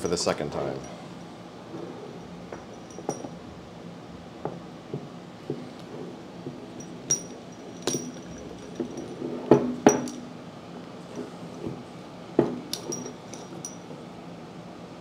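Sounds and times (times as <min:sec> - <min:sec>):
light metallic clinks and knocks: 0:00.7 - 0:01.1, 0:02.1 - 0:03.5, 0:06.4 - 0:10.3, 0:12.4 - 0:14.0.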